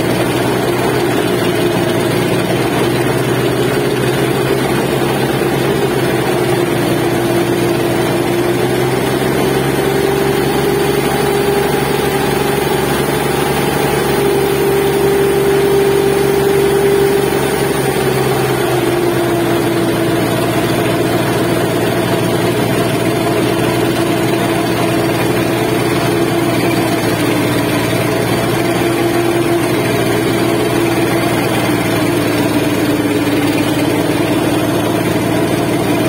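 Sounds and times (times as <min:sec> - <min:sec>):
boat engine droning: 0:00.0 - 0:36.0.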